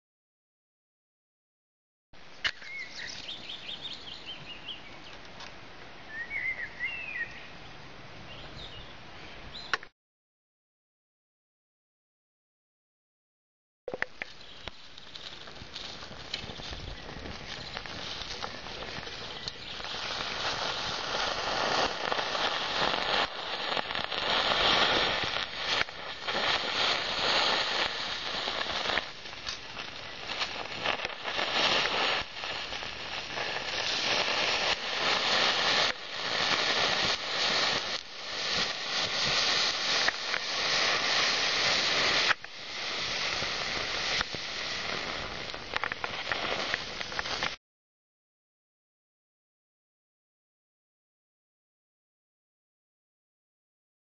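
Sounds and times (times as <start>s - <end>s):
background hiss: 2.2s - 9.8s, 14.0s - 47.6s
songbirds chirping: 2.3s - 5.3s, 6.0s - 9.8s, 14.2s - 15.4s, 16.4s - 20.5s.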